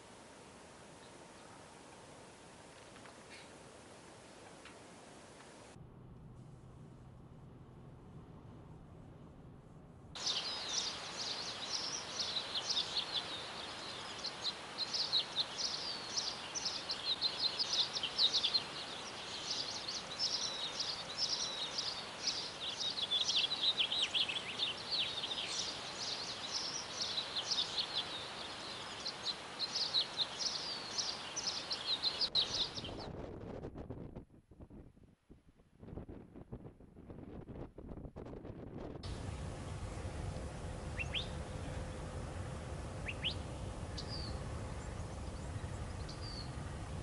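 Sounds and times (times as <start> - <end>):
steady hiss: 0.0 - 7.3, 8.4 - 32.8, 39.0 - 47.0
small birds chirping: 3.2 - 3.6, 10.2 - 33.1, 40.6 - 42.1, 42.9 - 47.0.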